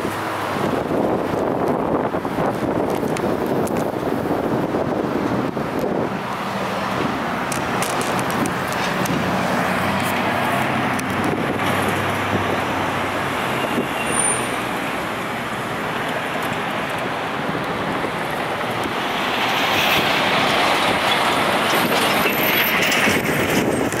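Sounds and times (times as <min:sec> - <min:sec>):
road traffic passing: 0:00.0 - 0:24.0.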